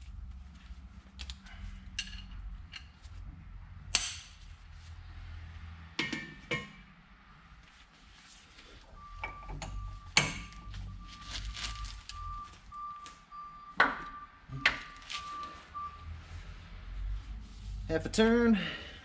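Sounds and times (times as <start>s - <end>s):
vehicle reversing beeper: 8.6s - 17.1s.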